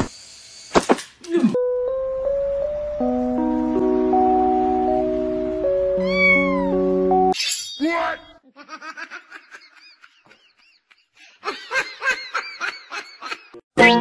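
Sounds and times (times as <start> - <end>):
piano music: 1.6 - 7.4, 13.8 - 14.0
cat meowing: 6.0 - 6.8.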